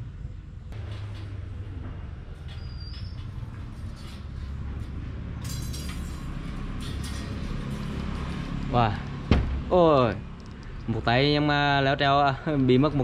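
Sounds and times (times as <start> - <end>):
high squeak: 2.5 - 4.4
metallic clicks and rattles: 5.4 - 8.7.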